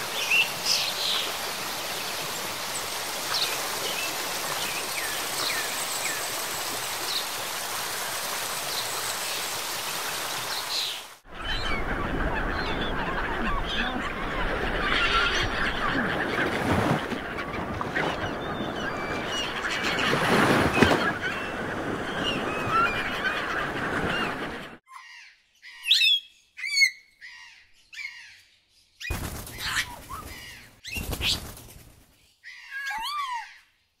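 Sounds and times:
chorus of birds calling: 10.5 - 28.4, 29.0 - 31.5.

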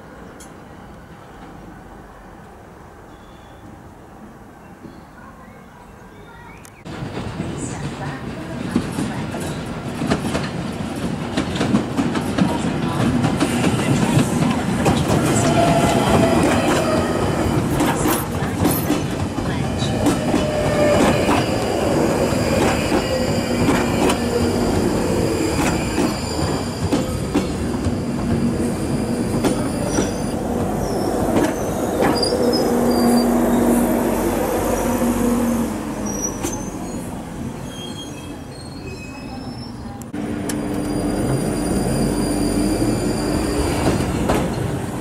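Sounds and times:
train wheels clattering over rails: 6.9 - 32.6, 43.6 - 45.0
wheels squealing: 36.0 - 44.2.

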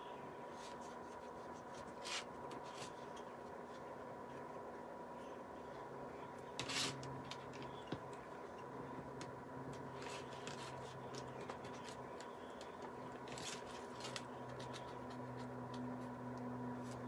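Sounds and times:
steady low hum: 0.0 - 17.0
sponge scratching and rustling: 0.5 - 3.2, 6.6 - 7.1.

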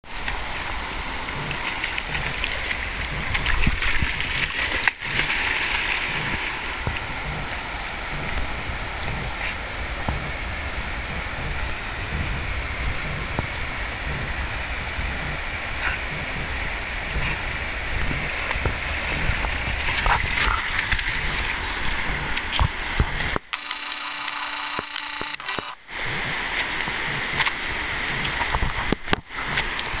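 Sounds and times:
steady low rumble: 0.0 - 23.5
rushing river water: 0.1 - 23.8
dog splashing and swimming: 0.2 - 8.3
steady whine of held tones: 23.5 - 25.9.

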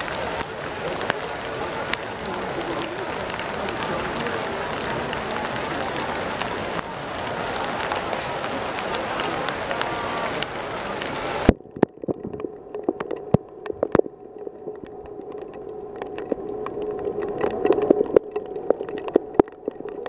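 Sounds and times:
heavy rain hissing: 0.0 - 11.5.

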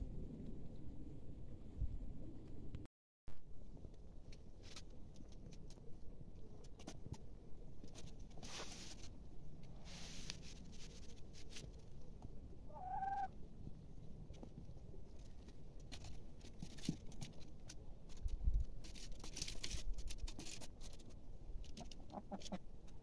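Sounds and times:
faint low rumble: 0.0 - 19.1
rustling: 4.2 - 12.3, 14.2 - 23.0
chicken call: 12.7 - 13.3.

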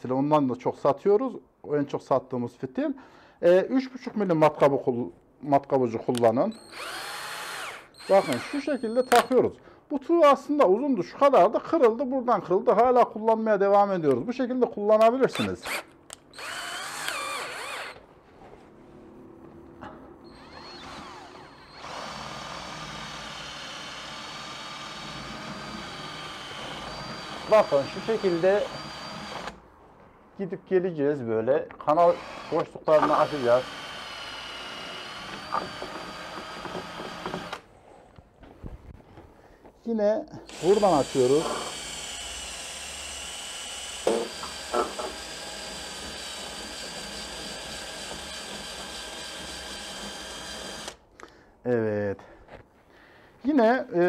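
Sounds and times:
cordless drill whining: 6.5 - 9.4, 15.3 - 18.0, 20.2 - 29.6, 32.0 - 37.7, 40.4 - 51.0.

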